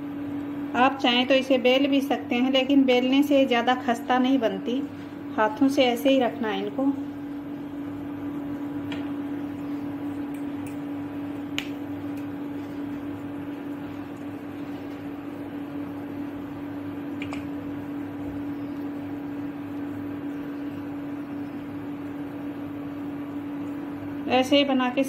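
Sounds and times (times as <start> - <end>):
machine hum: 0.0 - 25.0.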